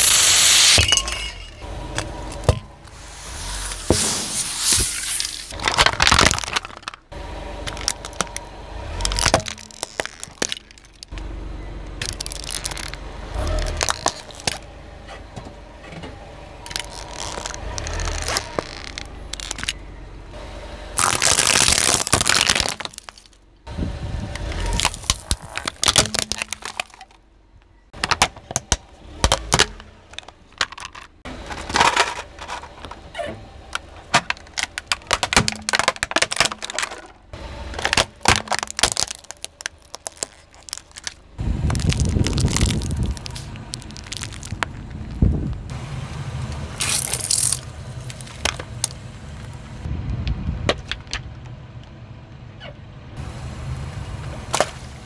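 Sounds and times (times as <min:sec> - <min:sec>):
tyre crushing plastic toys: 0:00.0 - 0:11.2, 0:12.0 - 0:14.7, 0:16.7 - 0:19.8, 0:21.0 - 0:23.4, 0:24.4 - 0:27.2, 0:28.0 - 0:33.1, 0:33.7 - 0:45.0, 0:46.8 - 0:49.6.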